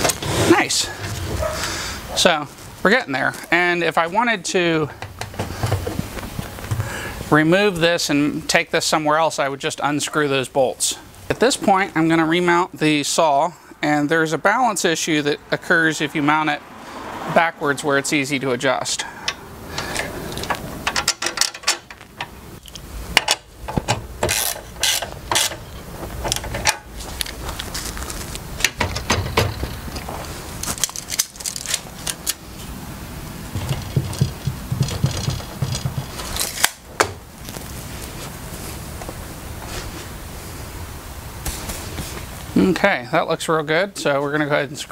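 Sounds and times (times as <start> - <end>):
metal clicks and clanks: 19.2 - 27.3, 28.6 - 32.4, 33.6 - 36.8.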